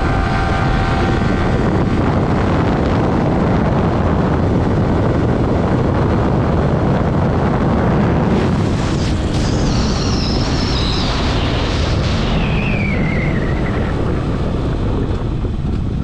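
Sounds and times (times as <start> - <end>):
motorcycle engine running: 0.0 - 11.7
wind rushing over microphone: 0.0 - 16.0
high tone sliding downward: 8.3 - 14.8.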